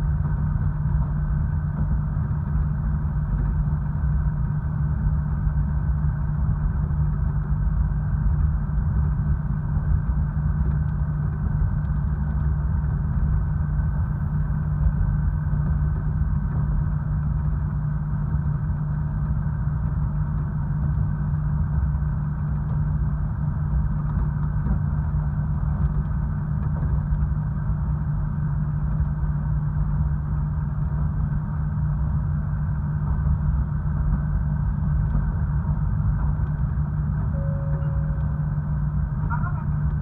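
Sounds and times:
train rumble: 0.0s - 40.0s
diesel engine droning: 33.1s - 40.0s.

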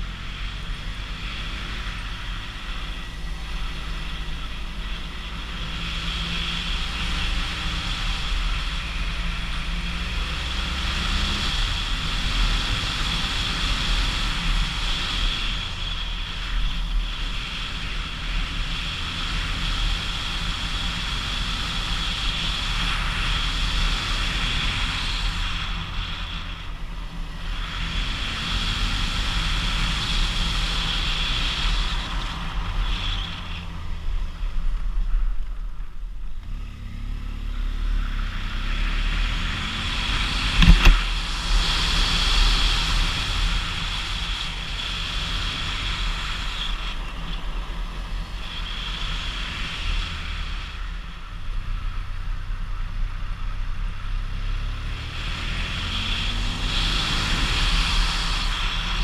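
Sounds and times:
motorcycle engine under load: 0.0s - 59.0s
wind rush over microphone: 38.0s - 59.0s.

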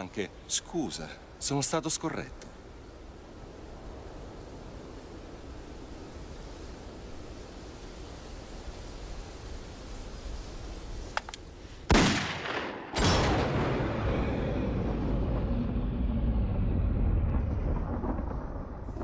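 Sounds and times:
faint clicks: 11.1s - 11.5s
pistol shots echoing: 11.9s - 13.5s
low rumble: 13.4s - 19.0s.

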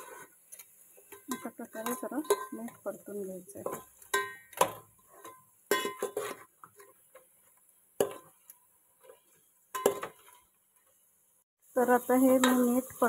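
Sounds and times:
metal spoon scraping metal pot: 0.0s - 7.2s.

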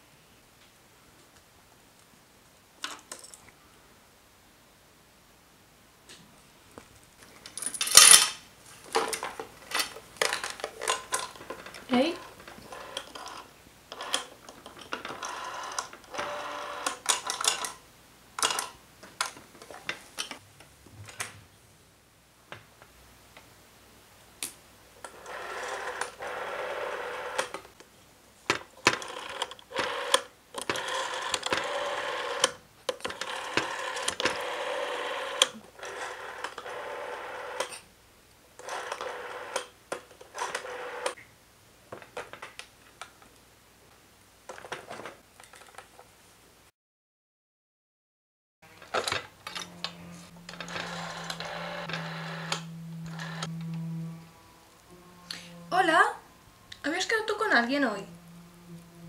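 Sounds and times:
rotary dial whirring back: 12.2s - 14.3s, 15.1s - 17.7s, 25.1s - 27.6s, 28.9s - 37.7s, 38.6s - 39.7s, 40.3s - 41.2s, 48.8s - 55.4s.

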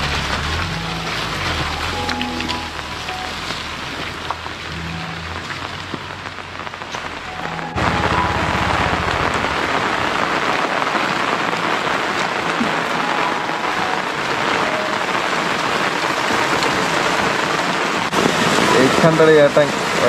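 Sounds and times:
steady rain hiss: 0.0s - 20.0s
low rumble: 2.8s - 10.6s.

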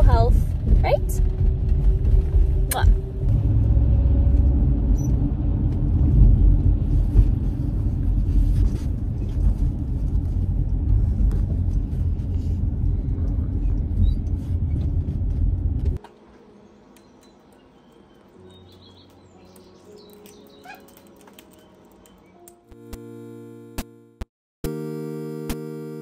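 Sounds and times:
road and engine rumble: 0.0s - 23.2s.

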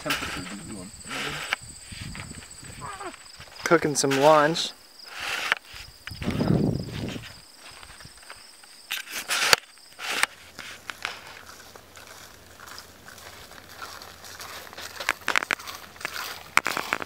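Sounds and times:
footsteps: 0.0s - 17.0s
insect trill: 0.0s - 17.0s
gear rustling and knocking: 10.6s - 17.0s.

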